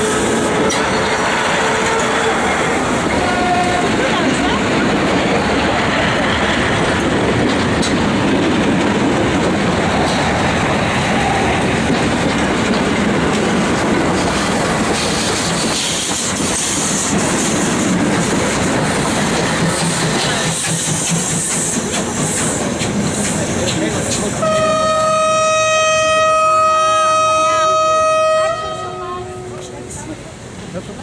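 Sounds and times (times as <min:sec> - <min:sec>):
high steam hiss: 0:00.0 - 0:24.5
rail clatter: 0:00.0 - 0:31.0
steam locomotive rolling on track: 0:00.0 - 0:31.0.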